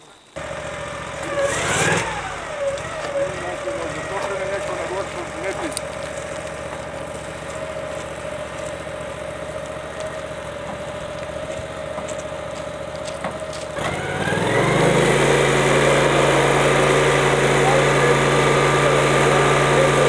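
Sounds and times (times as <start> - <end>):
engine idling: 0.0 - 20.0
louder engine revving up: 0.4 - 12.1, 13.5 - 20.0.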